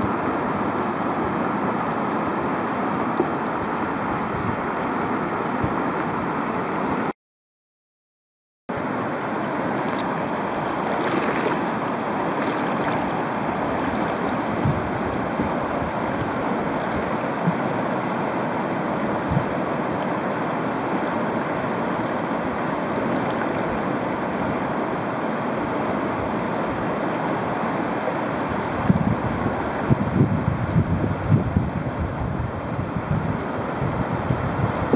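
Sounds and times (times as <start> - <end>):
river rapids rushing: 0.0 - 7.1, 8.8 - 29.9.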